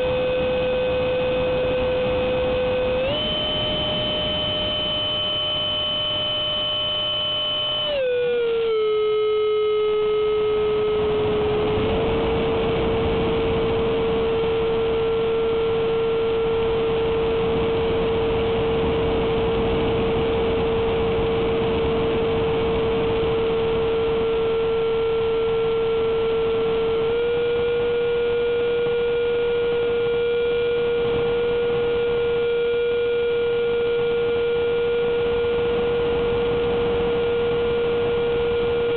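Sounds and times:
electric fan whine: 0.0 - 38.9
air rushing through fan: 7.9 - 38.9.

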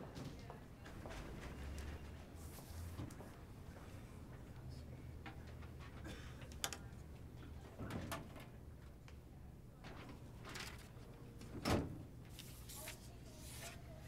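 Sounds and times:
papers rustling: 9.9 - 11.1.

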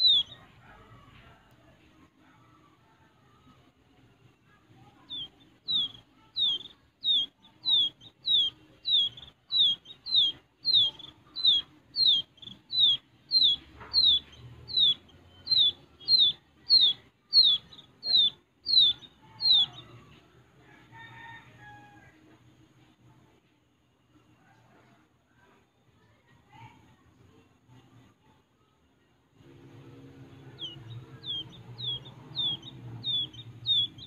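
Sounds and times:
quail chick peeping: 0.0 - 1.6, 4.5 - 20.2, 29.4 - 34.0.

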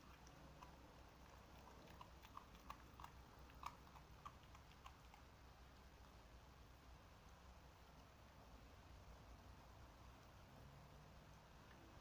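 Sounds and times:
dog chewing: 0.0 - 5.4.

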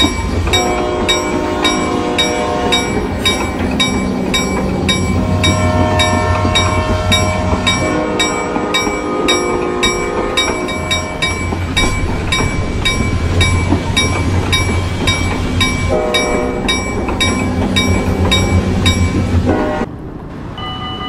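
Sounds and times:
railroad crossing bell dinging: 0.0 - 19.9, 20.5 - 21.0
freight train rumble: 0.0 - 21.0
train horn: 0.5 - 3.4, 4.9 - 11.3, 15.9 - 16.6, 19.4 - 19.9.

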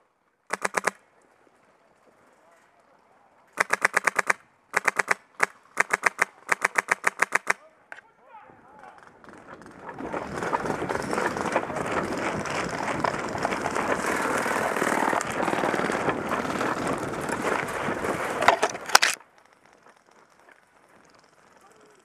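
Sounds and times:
sharp twig cracks: 18.9 - 19.2.

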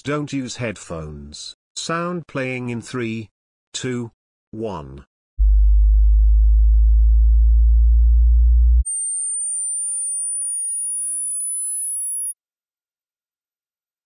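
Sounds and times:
deep steady test tone: 5.4 - 12.4
high-pitched climbing whine: 8.2 - 12.4
quiet very high tone: 8.9 - 14.0.

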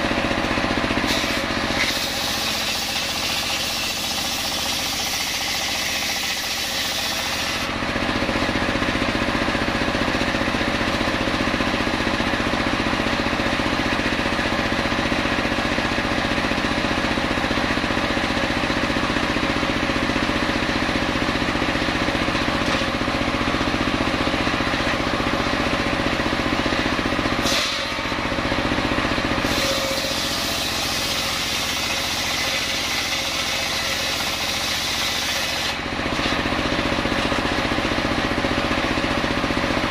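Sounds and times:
circular saw ripping wood: 0.1 - 8.2, 27.3 - 38.4.

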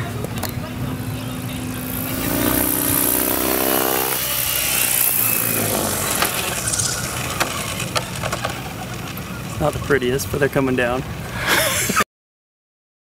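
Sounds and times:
rotor blades rushing: 0.6 - 9.5
rc helicopter motor whine: 0.7 - 9.6.

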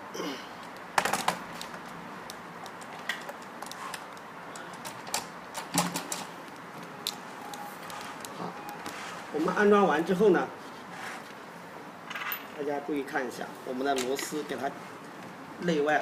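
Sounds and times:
metal lock parts clicking and knocking: 2.6 - 6.3, 13.9 - 14.5.

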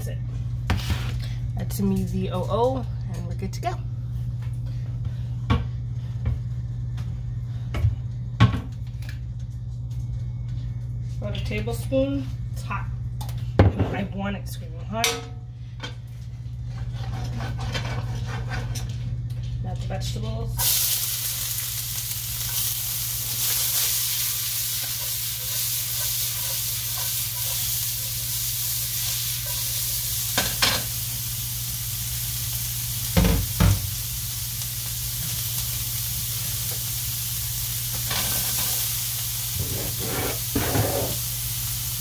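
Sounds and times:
vegetables sizzling in hot oil: 20.6 - 42.0.

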